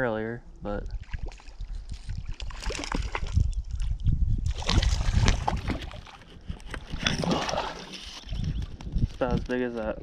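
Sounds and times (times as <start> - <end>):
wind buffeting microphone: 0.6 - 10.0
shallow water sloshing and splashing: 1.0 - 8.8.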